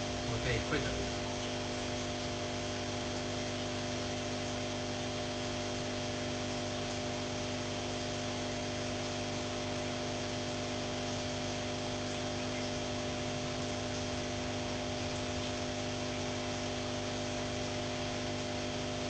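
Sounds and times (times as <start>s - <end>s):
steady electrical hum: 0.0s - 19.0s.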